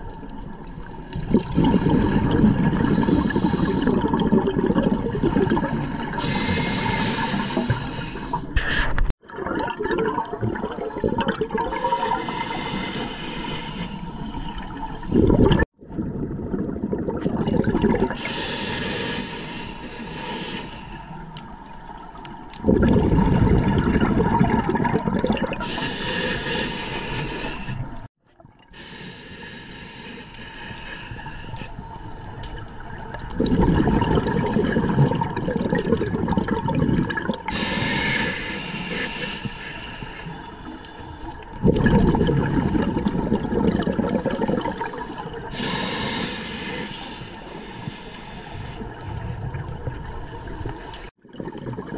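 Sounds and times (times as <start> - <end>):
exhaled bubbles rushing: 1.2 - 8.0, 9.2 - 12.6, 14.3 - 18.4, 22.5 - 25.8, 32.0 - 37.7, 41.4 - 45.7, 48.8 - 51.9
regulator hissing inhalations: 2.8 - 3.8, 5.8 - 9.0, 11.7 - 15.3, 18.2 - 21.2, 25.6 - 28.0, 28.8 - 31.8, 37.5 - 41.4, 45.5 - 49.0.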